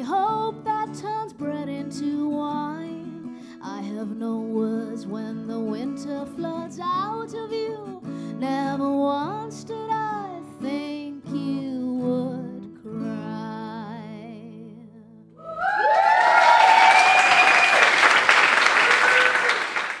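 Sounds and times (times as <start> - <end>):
woman singing: 0.0 - 15.2
acoustic guitar: 0.0 - 15.4
audience applause and cheers: 15.4 - 20.0.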